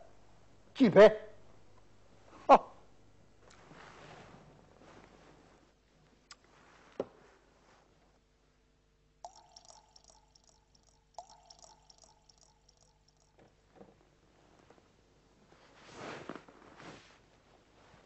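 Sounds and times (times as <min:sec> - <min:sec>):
wine pouring into cup: 0:09.2 - 0:13.4.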